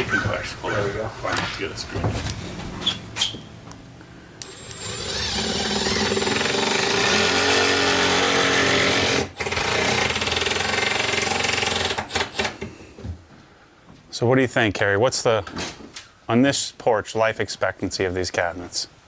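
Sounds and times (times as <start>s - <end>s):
power driver whirring: 4.4s - 7.4s.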